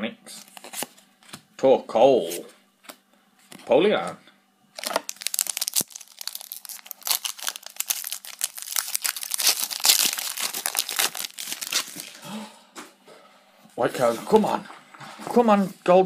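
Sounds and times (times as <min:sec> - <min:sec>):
foil wrapper tearing and crinkling: 0:04.8 - 0:12.2.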